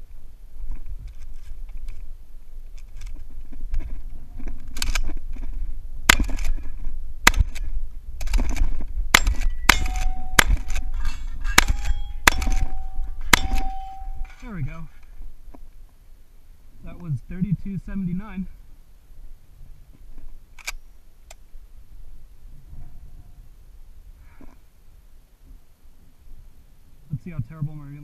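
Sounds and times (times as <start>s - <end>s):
shells loading clicks: 4.8s - 5.1s, 7.3s - 11.0s, 11.6s - 14.4s, 20.6s - 21.4s
shotgun shots: 6.1s - 6.6s, 7.2s - 7.7s, 9.1s - 14.4s
steel targets ringing: 9.2s - 14.5s.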